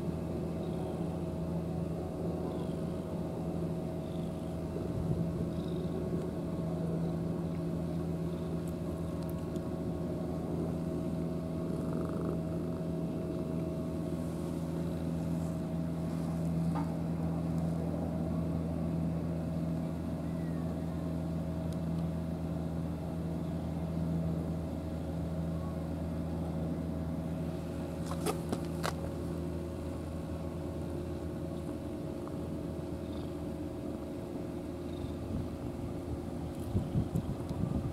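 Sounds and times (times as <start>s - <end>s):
low engine-like drone: 0.0s - 37.9s
cat purring: 11.6s - 13.4s.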